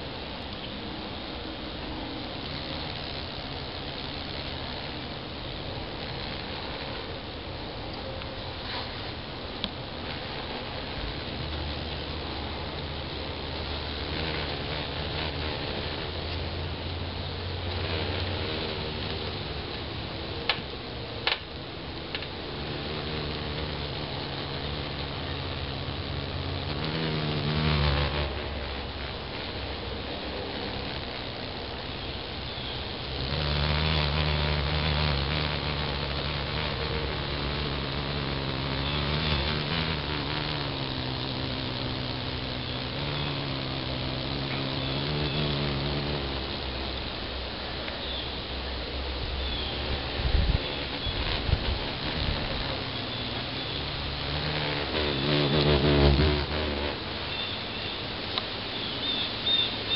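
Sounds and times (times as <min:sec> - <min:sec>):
low mechanical hum: 0:00.0 - 0:59.9
sharp clicks: 0:20.4 - 0:22.4.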